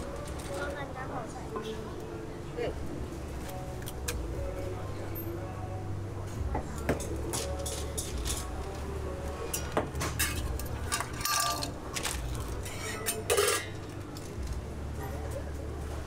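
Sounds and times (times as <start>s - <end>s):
metal spatula scraping a griddle: 12.6s - 13.8s.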